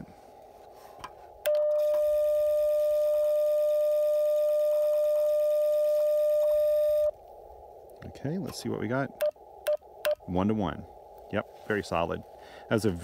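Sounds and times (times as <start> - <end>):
faint receiver hiss: 0.0 - 13.0
steady radio tone: 1.5 - 7.2.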